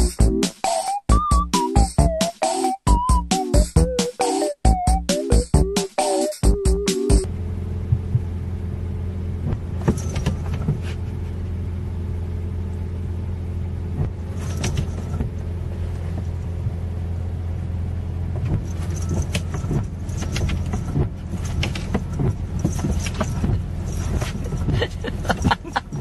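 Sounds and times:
car engine humming in cabin: 0:06.5 - 0:26.0
windshield wipers on wet glass: 0:07.9 - 0:08.3, 0:09.4 - 0:11.0, 0:13.9 - 0:15.4, 0:18.3 - 0:25.6.

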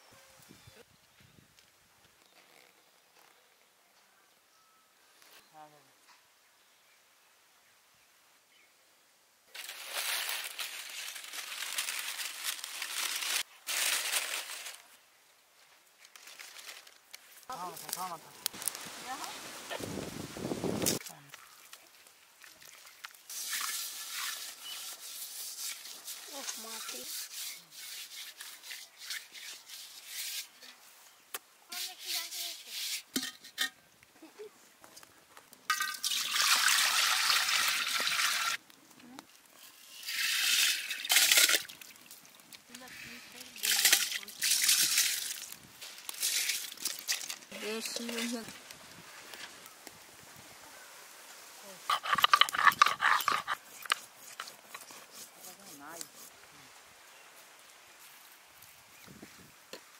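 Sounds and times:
plastic sheeting and leaves crinkling: 0:09.5 - 0:33.0, 0:34.1 - 0:59.9
water pouring into metal pot: 0:35.7 - 0:38.6, 0:39.9 - 0:42.1, 0:43.6 - 0:45.5.

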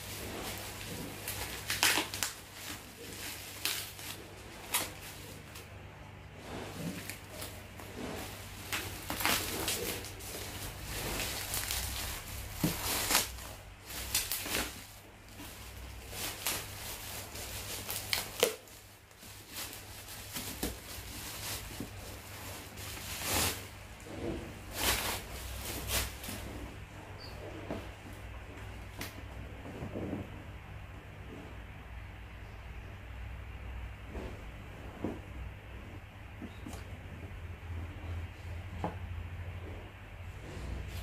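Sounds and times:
plastic bag crinkling: 0:00.0 - 0:05.8, 0:06.6 - 0:26.4.

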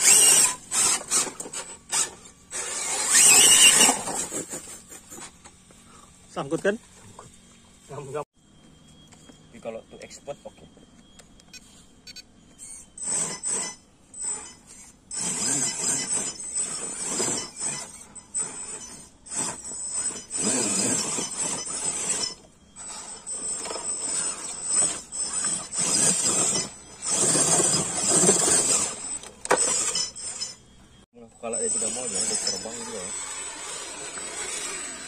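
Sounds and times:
toy car electric motor whirring: 0:00.0 - 0:05.6, 0:11.4 - 0:30.7, 0:31.5 - 0:35.0.

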